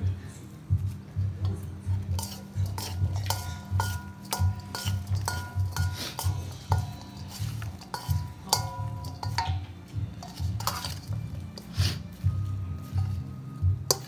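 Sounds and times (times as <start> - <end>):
spoon knocking on metal bowl: 2.1 - 11.1.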